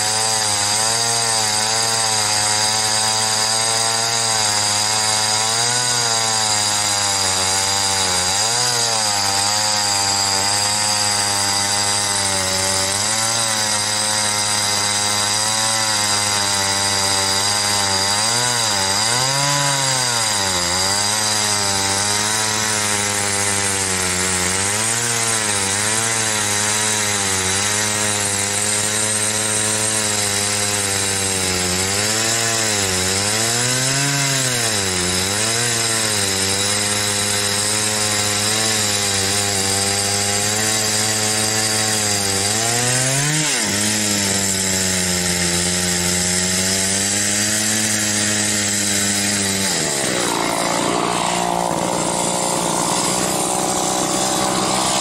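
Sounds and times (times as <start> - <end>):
chainsaw cutting log: 0.0 - 55.0.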